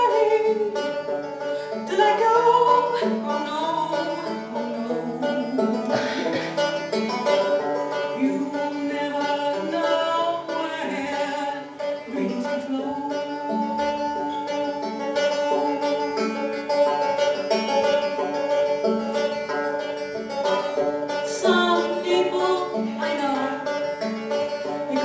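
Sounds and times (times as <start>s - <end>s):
woman singing: 0.0s - 1.1s, 1.7s - 6.2s, 7.4s - 16.5s, 21.2s - 23.8s, 24.7s - 25.0s
banjo picking: 0.0s - 25.0s.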